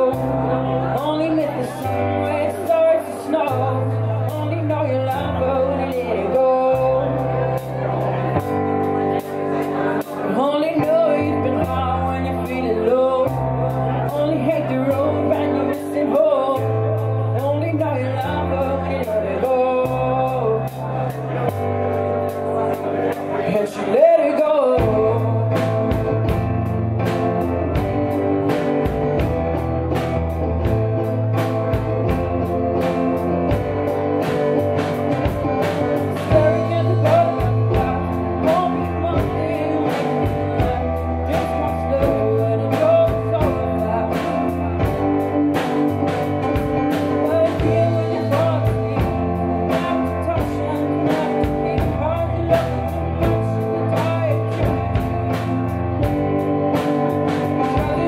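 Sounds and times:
keyboard: 0.0s - 58.0s
young woman singing: 0.9s - 7.3s, 10.2s - 13.4s, 14.0s - 16.8s
drum kit beat: 1.0s - 24.0s, 24.6s - 58.0s.

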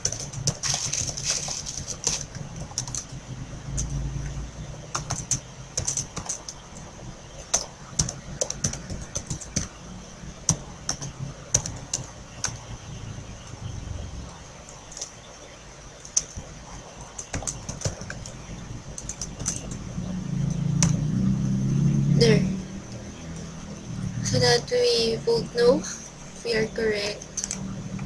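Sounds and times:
keyboard typing: 0.0s - 9.8s, 10.4s - 15.3s, 16.0s - 21.1s, 27.0s - 28.0s
faint low hum: 0.0s - 28.0s.

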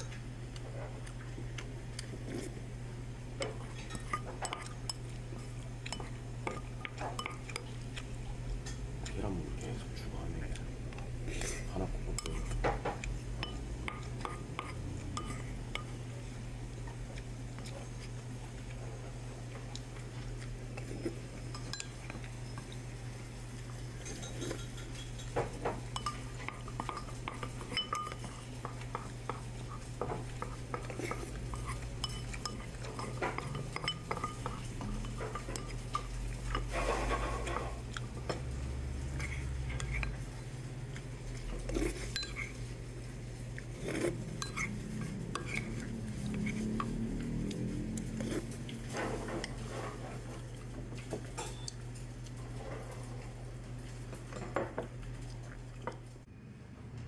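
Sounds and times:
steady low hum: 0.0s - 57.0s
wooden spoon scraping ceramic bowl: 24.0s - 40.2s, 41.3s - 42.6s, 43.6s - 47.0s.

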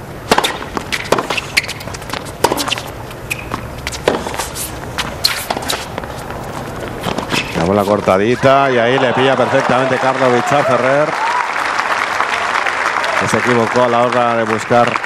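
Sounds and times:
tennis racket hitting ball: 0.2s - 8.2s
shoes squeaking on court: 0.3s - 8.7s.

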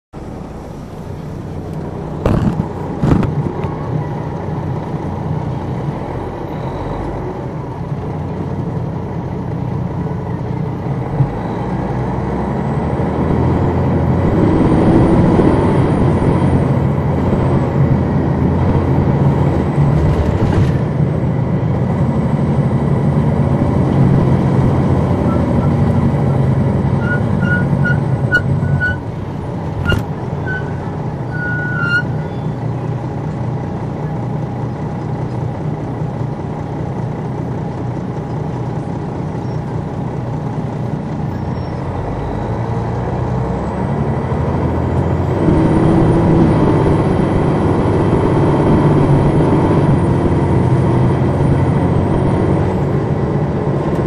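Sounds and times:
bus diesel engine running: 0.1s - 54.0s
short beeps: 6.5s - 7.1s, 27.0s - 29.0s, 29.8s - 32.6s.

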